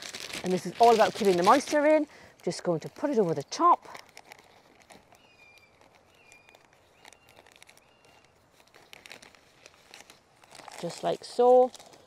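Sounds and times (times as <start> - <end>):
small bird whistling: 5.2 - 8.3.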